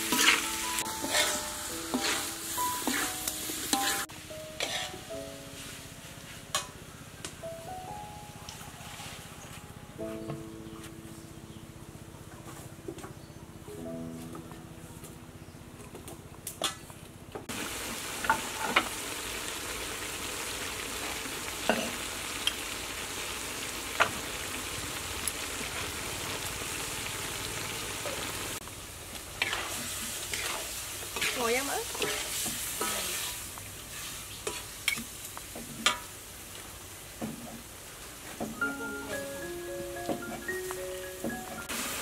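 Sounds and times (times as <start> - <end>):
metal spatula scraping a pan: 0.0 - 5.0, 29.4 - 35.0
liver sizzling in a wok: 0.0 - 5.8, 17.5 - 39.6, 40.4 - 42.0.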